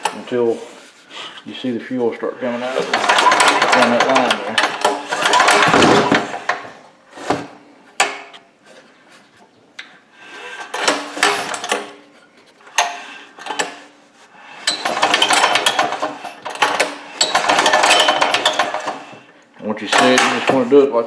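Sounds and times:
diesel engine hand cranking: 0:02.4 - 0:06.7, 0:10.2 - 0:12.0, 0:12.6 - 0:20.7.

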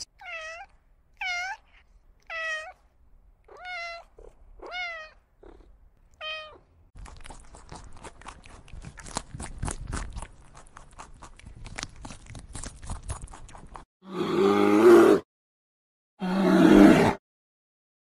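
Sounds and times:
cat meowing: 0:00.0 - 0:02.8, 0:03.4 - 0:06.7
rabbit chewing clicks and crunches: 0:07.0 - 0:13.8.

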